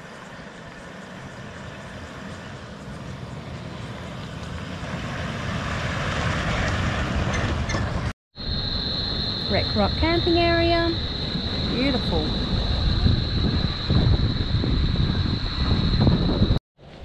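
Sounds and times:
vehicle driving on dirt track: 0:00.2 - 0:08.1.

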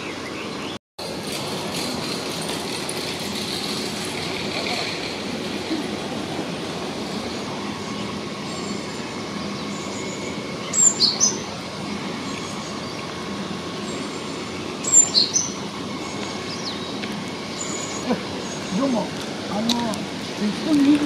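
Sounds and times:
high-pitched bird calls: 0:07.2 - 0:19.1.

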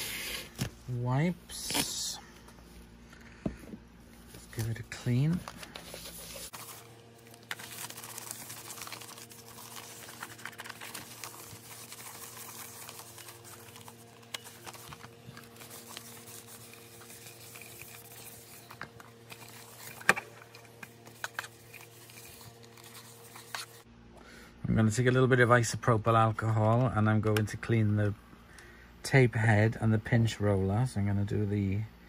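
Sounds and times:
faint steady hum: 0:00.0 - 0:32.0
wipe rubbing plastic case: 0:07.5 - 0:23.8.

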